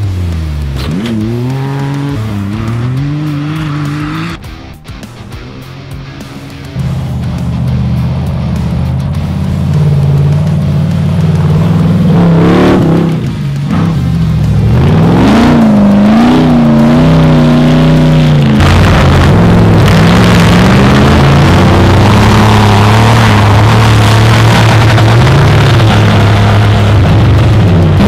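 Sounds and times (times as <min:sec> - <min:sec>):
race vehicle engine revving: 0:00.0 - 0:28.0.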